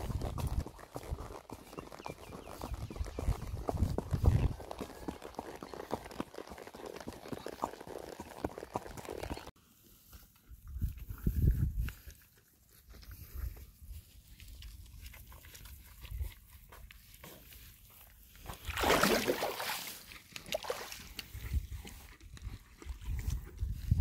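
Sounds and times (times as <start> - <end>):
horse hooves thudding softly: 0.0 - 9.5.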